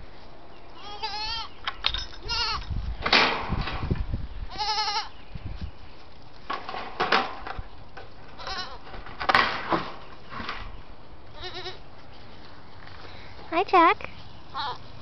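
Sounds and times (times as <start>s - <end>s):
goat kids bleating: 0.8s - 1.6s, 2.2s - 2.7s, 4.5s - 5.2s, 8.3s - 8.9s, 11.2s - 12.0s, 14.5s - 14.9s.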